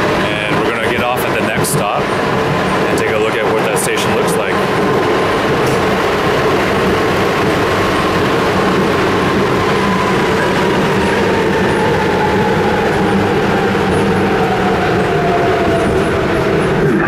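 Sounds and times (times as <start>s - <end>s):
subway train rumbling: 0.0s - 17.0s.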